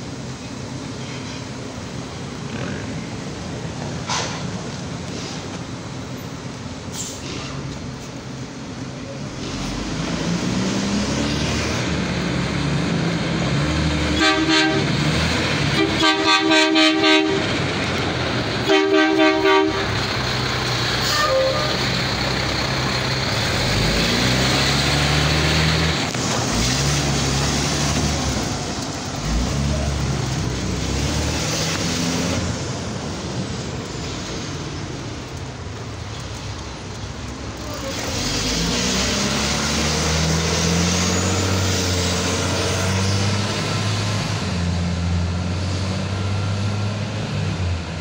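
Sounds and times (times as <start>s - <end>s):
diesel engine revving: 9.1s - 48.0s
truck horn honking: 14.0s - 15.1s, 15.7s - 17.6s, 18.6s - 20.0s, 21.0s - 22.0s.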